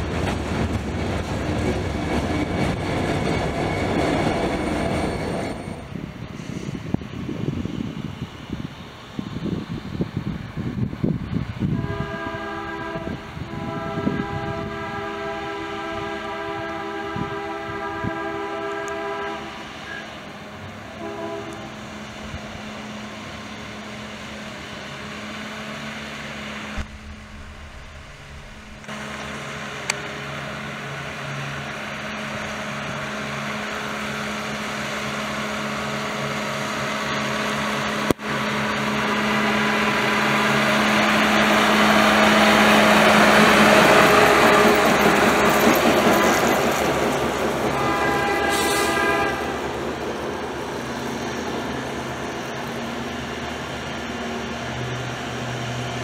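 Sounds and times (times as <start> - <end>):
machine engine humming on rails: 0.0 - 11.8, 18.8 - 56.0
multi-note horn: 11.8 - 19.5, 21.0 - 21.7, 47.7 - 49.6.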